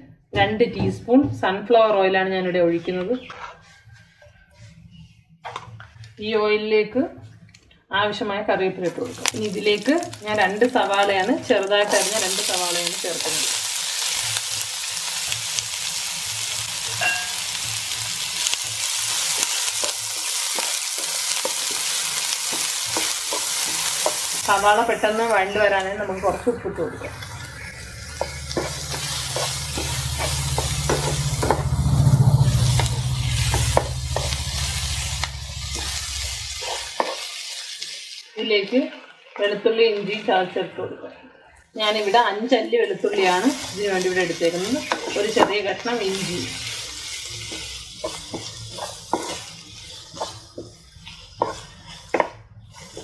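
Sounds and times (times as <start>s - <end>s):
onions sizzling in hot oil: 9.0s - 40.2s, 41.8s - 53.0s
spatula scraping pan: 16.3s - 38.0s, 43.1s - 53.0s
low hum: 24.4s - 37.0s.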